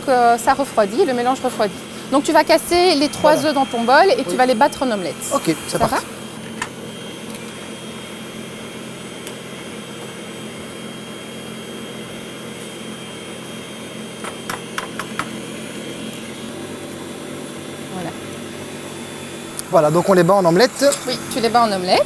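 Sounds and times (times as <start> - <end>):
stand mixer motor hum: 0.0 - 22.0.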